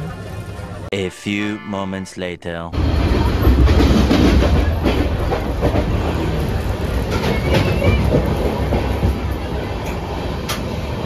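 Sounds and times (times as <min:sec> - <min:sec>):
train wheels rumbling: 0:02.8 - 0:11.0
clickety-clack of rail joints: 0:03.4 - 0:11.0.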